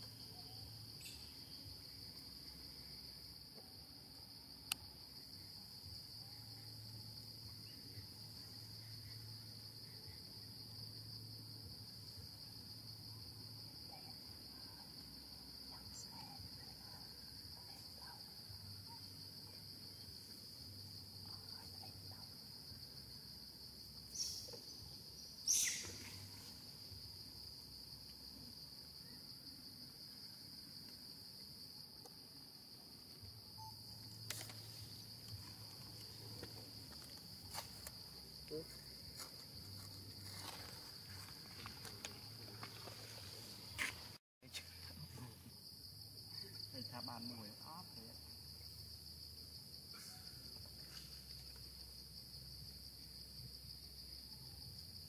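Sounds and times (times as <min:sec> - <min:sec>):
high-pitched insect trill: 0:00.0 - 0:55.0.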